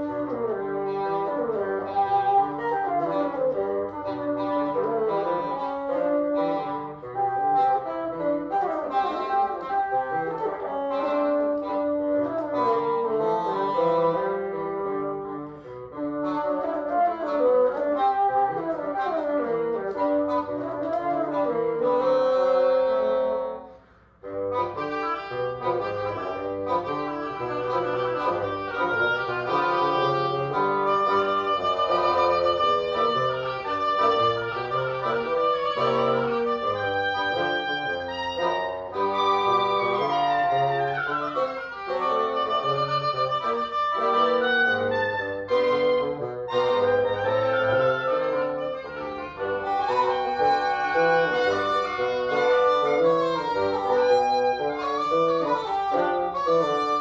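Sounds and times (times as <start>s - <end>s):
double reed ensemble playing blues: 0.0s - 57.0s.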